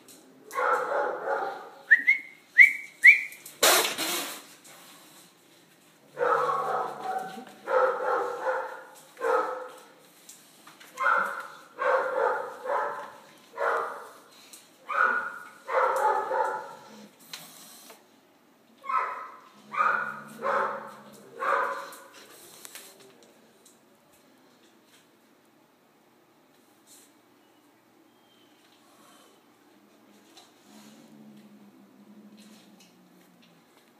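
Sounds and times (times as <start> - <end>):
dog barking drawn-out barks: 0.5 - 1.8, 6.2 - 9.8, 11.0 - 14.2, 14.9 - 16.9, 18.8 - 22.1
brief loud noise: 3.6 - 4.4
dog yelps: 18.8 - 20.8.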